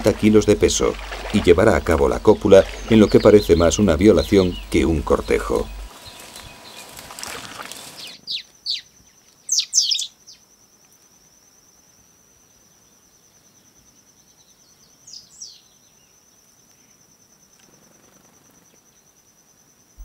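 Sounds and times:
pulsing insect trill: 0.0s - 7.0s, 16.0s - 20.0s
downward-sweeping bird chirps: 8.0s - 10.4s.

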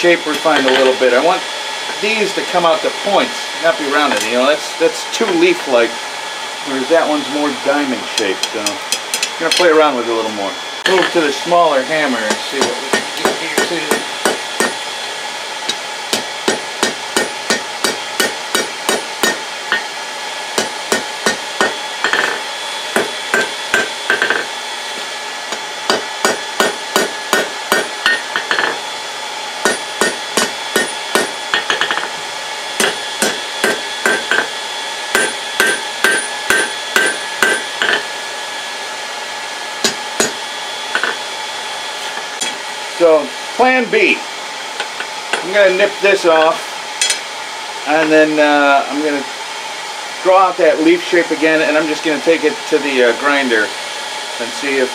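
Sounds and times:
hammer striking hot steel on anvil: 12.2s - 14.8s, 15.7s - 19.9s, 20.6s - 24.5s, 25.5s - 28.8s, 29.6s - 32.2s, 32.8s - 38.1s, 39.8s - 41.3s, 46.4s - 47.3s
anvil ringing tone: 25.9s - 28.8s, 35.1s - 38.1s, 46.4s - 47.2s.

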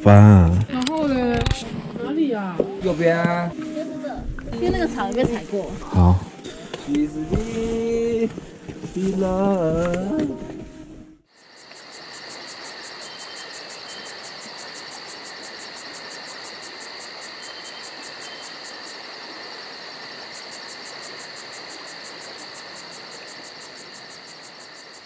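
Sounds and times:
insects high-pitched trilling: 11.3s - 25.0s
insects pulsing chirp: 11.3s - 25.0s.

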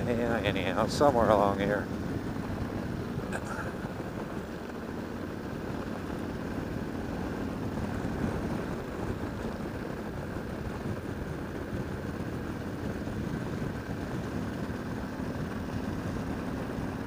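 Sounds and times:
motorcycle engine at road speed: 0.0s - 17.0s
wind noise: 0.0s - 17.0s.

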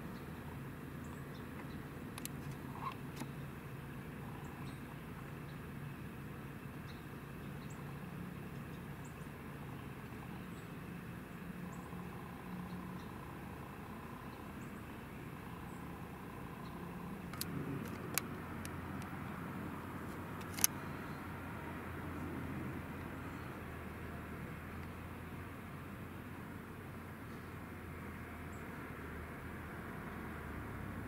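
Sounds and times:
distant engine hum: 0.0s - 31.0s
sharp clicks: 2.1s - 3.3s, 17.2s - 19.2s, 20.0s - 21.0s.

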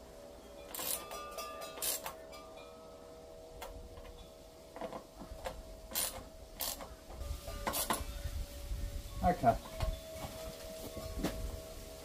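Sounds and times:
ratchet strokes: 0.7s - 1.2s, 1.8s - 2.2s, 5.9s - 6.9s.

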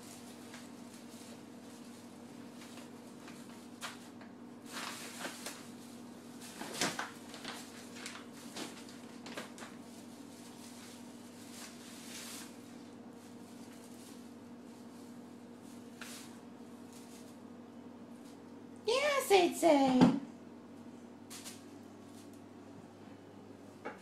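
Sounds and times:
plastic bags rustling: 0.0s - 17.5s
steady low hum: 0.0s - 24.0s.

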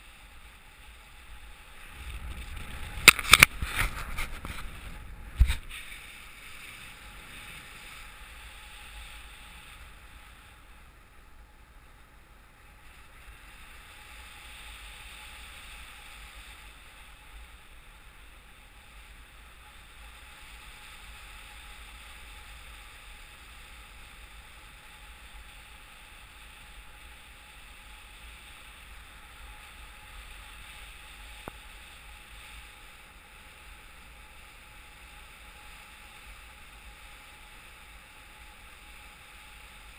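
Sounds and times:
wind rushing over microphone: 1.2s - 10.2s.

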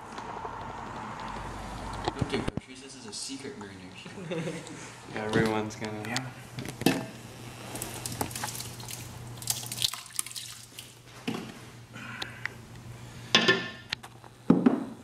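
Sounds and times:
liquid splashing onto meat: 7.7s - 11.0s.

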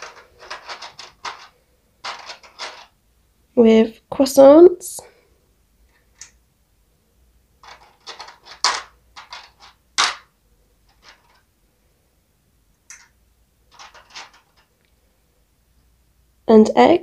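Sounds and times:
plastic toy pieces clicking: 0.0s - 2.9s, 6.2s - 6.4s, 7.6s - 10.3s, 12.9s - 14.7s.

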